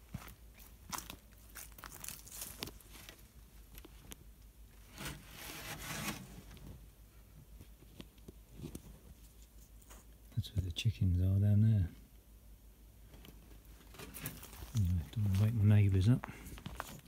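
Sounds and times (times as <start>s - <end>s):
rustling scrape: 4.8s - 6.8s, 13.6s - 15.6s
clothing rustle: 13.6s - 15.7s
footsteps: 13.8s - 17.0s.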